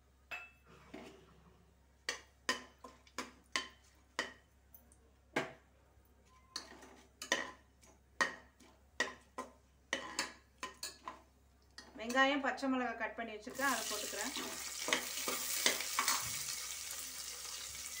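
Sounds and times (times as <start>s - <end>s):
spoon scraping and tapping pot: 2.1s - 4.5s, 6.5s - 12.2s.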